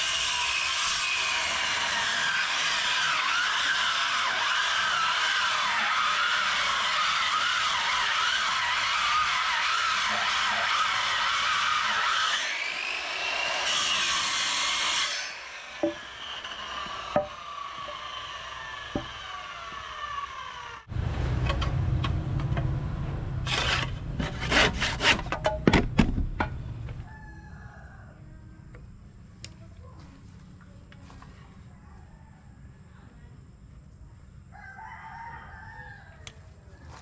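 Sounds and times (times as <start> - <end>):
power tool whining down: 0.0 - 22.7
low motor hum: 20.9 - 25.0.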